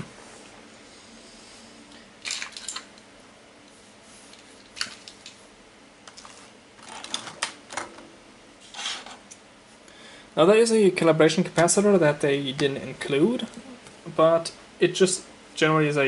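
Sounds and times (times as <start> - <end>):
wire lead clicking and rustling: 4.3 - 5.4, 6.0 - 8.1.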